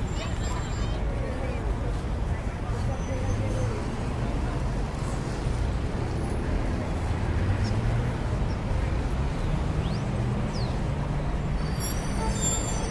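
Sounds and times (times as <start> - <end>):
city traffic with engine hum: 0.0 - 12.9
high squeaks: 11.6 - 12.9.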